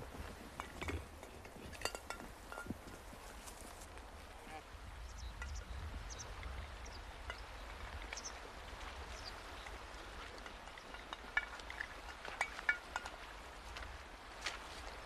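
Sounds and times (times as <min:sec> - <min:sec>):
footsteps crunching through snow: 0:02.8 - 0:04.0.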